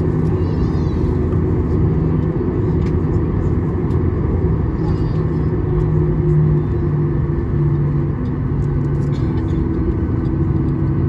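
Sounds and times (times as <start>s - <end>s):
jet engines rumbling: 0.0s - 11.0s
low droning hum: 0.0s - 11.0s.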